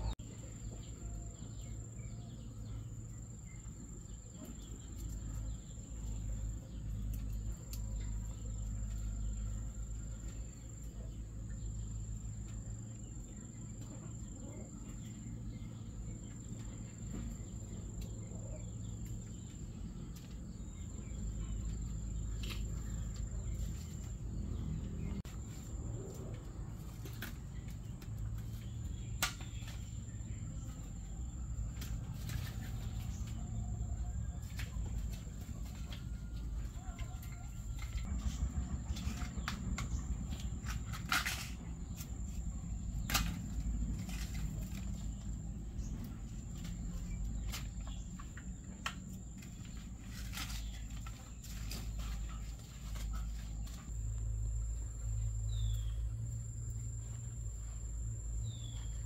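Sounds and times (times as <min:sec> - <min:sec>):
low outdoor rumble: 0:00.0 - 0:59.0
bamboo strips clicking and snapping: 0:26.2 - 0:29.9, 0:43.0 - 0:45.2, 0:46.5 - 0:53.8.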